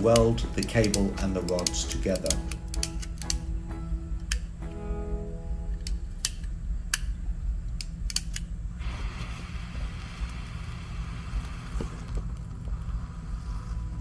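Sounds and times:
spark igniter clicks: 0.0 - 3.5, 5.7 - 12.6
welding charge hissing: 8.7 - 14.0.

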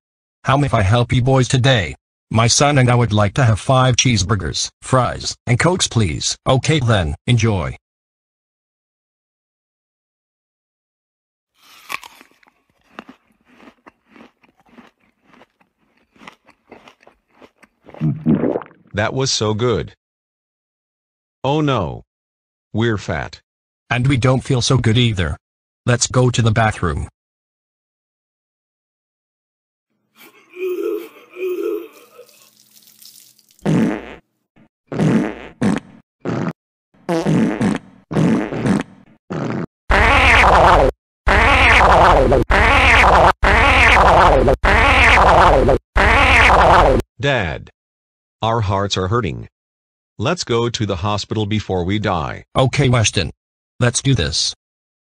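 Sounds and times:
cartoon crunching and chewing: 11.6 - 18.2, 31.4 - 33.8
cartoon fart sound effects: 18.0 - 18.9, 33.6 - 34.3, 34.9 - 47.0.

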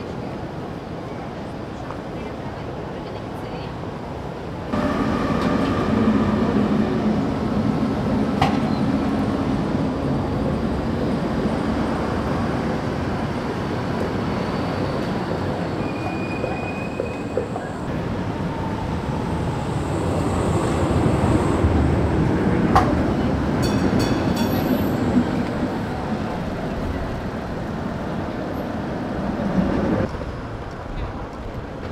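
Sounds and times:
tram wheels rumbling on rail: 0.0 - 31.9
high wheel squeal: 14.3 - 17.9.

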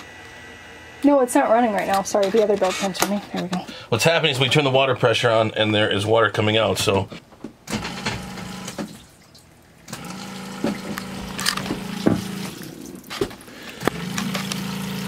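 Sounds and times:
water pump humming: 0.0 - 7.1, 7.7 - 15.0
water running: 8.2 - 15.0.

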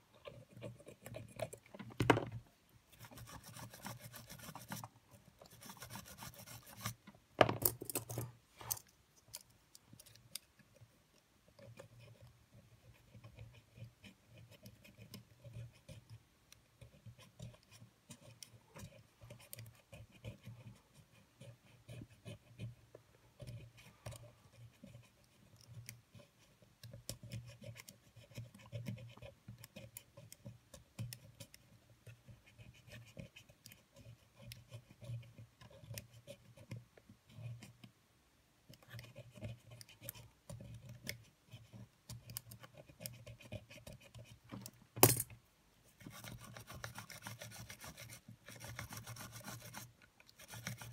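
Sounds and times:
metal tool clicking and scraping: 7.6 - 10.4.

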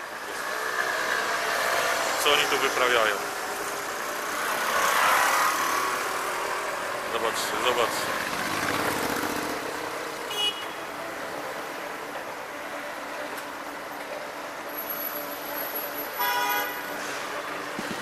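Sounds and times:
traffic road noise: 0.0 - 18.0
vehicle horn honking: 10.3 - 10.8, 16.2 - 17.0.

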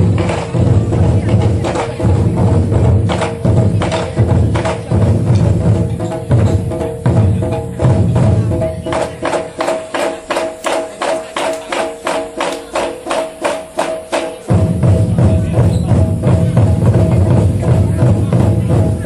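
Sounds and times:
deep barrel drum beats: 0.0 - 19.0.

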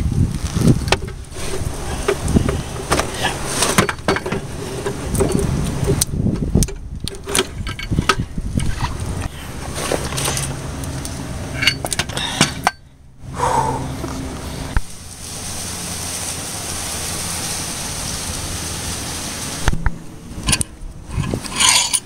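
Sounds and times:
hand tools clinking on metal: 11.5 - 12.9, 20.4 - 22.0.

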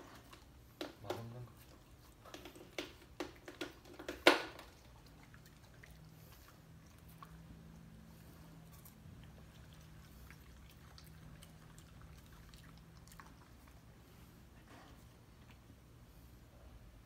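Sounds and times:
dog chewing and licking: 0.0 - 14.3
low steady hum: 0.0 - 17.0.

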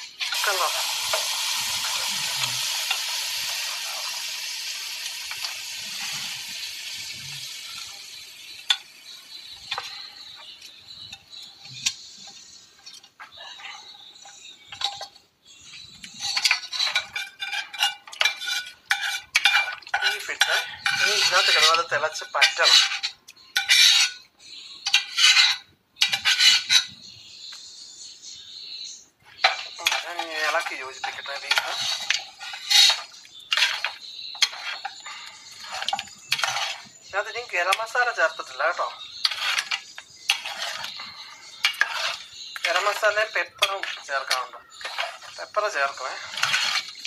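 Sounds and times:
liquid boiling with hiss: 0.0 - 10.0
food sizzling in a pan: 0.0 - 12.6, 15.5 - 21.8, 22.6 - 24.2, 24.9 - 26.9, 29.4 - 37.8, 38.9 - 47.0.

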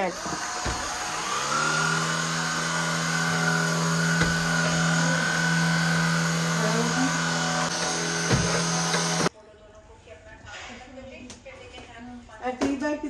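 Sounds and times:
vacuum cleaner running: 0.0 - 9.3.

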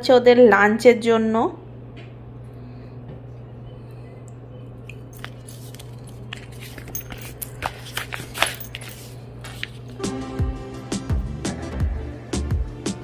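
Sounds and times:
steady low hum: 0.0 - 13.0
paper menu rustling: 5.0 - 10.0.

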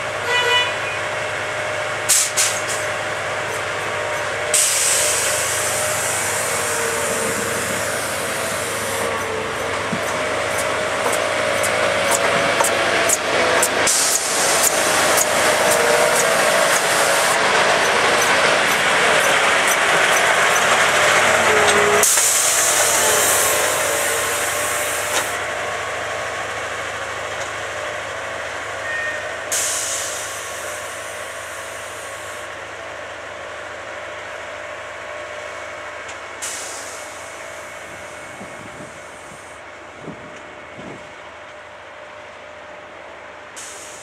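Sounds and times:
air hissing: 2.1 - 2.9, 4.2 - 17.4, 18.2 - 25.4, 29.5 - 32.4, 36.4 - 37.3, 43.6 - 44.0
track tamper machine running: 5.3 - 25.3.

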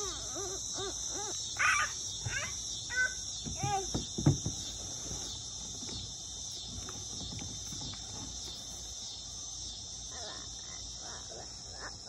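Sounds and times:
insects droning: 0.0 - 12.0
faint small knocks: 3.4 - 6.1.

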